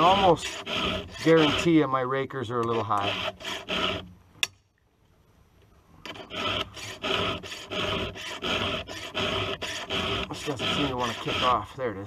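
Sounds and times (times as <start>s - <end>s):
file rasping on chainsaw chain: 0.0s - 2.0s, 2.6s - 4.1s, 6.1s - 11.7s.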